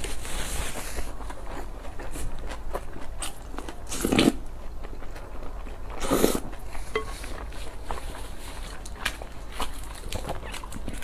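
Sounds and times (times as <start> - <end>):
chewing and mouth clicks: 1.0 - 11.0
slurping porridge from spoon: 3.8 - 4.5, 5.9 - 7.4.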